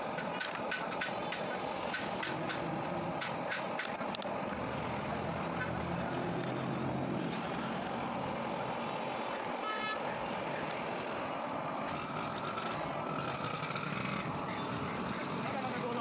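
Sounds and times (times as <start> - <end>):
road traffic noise: 0.0 - 16.0
vehicle horn tooting: 9.6 - 10.2.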